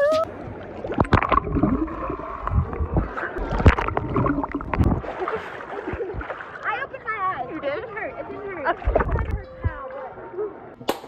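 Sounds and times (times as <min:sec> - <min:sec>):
muffled underwater rumble: 0:00.0 - 0:06.3, 0:08.8 - 0:09.8
sea water sloshing and splashing: 0:00.2 - 0:09.7.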